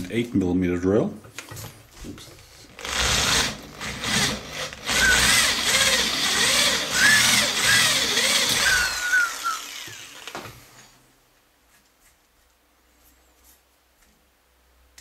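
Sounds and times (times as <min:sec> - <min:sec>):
drill bit squealing: 0:02.8 - 0:10.3
drill bit cutting metal: 0:02.8 - 0:10.4.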